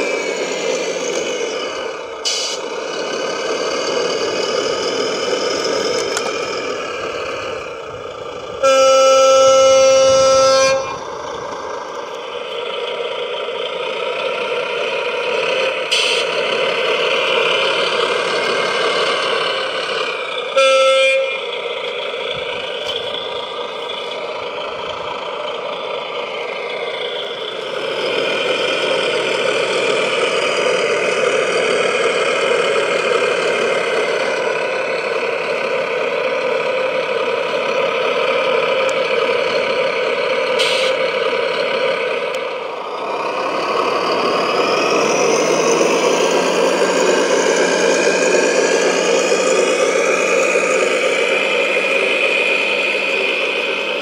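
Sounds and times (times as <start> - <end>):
short horn toot: 8.6 - 11.0, 20.6 - 21.5.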